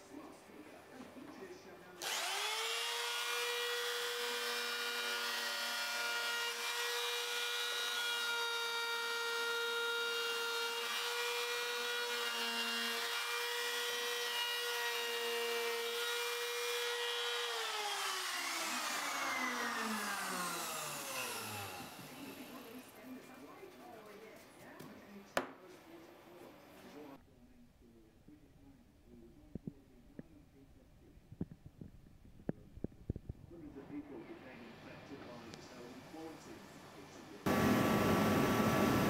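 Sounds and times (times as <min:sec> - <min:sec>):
router motor whining: 0:02.0 - 0:22.9.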